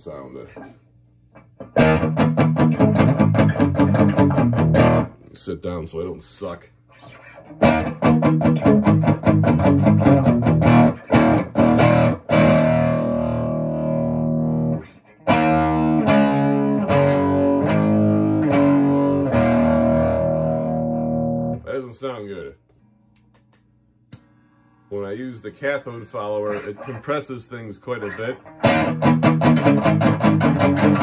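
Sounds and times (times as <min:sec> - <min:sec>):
overdriven electric guitar strumming: 0:01.4 - 0:05.2, 0:07.0 - 0:21.6, 0:28.0 - 0:31.0.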